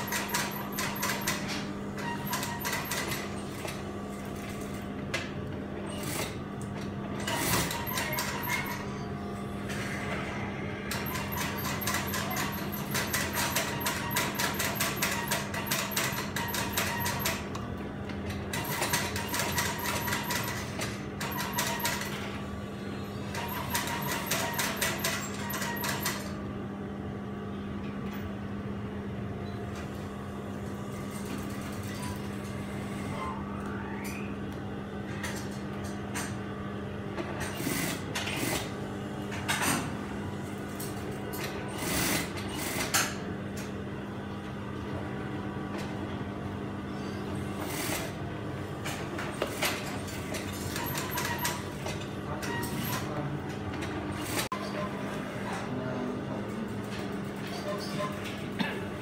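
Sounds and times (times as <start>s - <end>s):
sewing machine motor hum: 5.8s - 9.0s, 9.8s - 26.4s, 41.4s - 43.2s.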